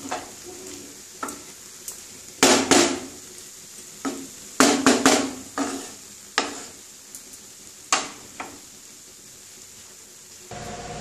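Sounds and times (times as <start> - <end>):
spatula knocking on wok: 4.0 - 6.6.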